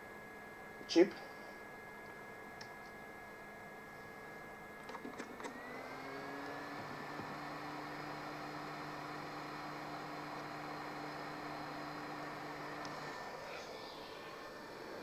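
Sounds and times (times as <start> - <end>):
small blower whirring: 3.1 - 15.0
clicks: 6.4 - 7.4, 12.8 - 13.1.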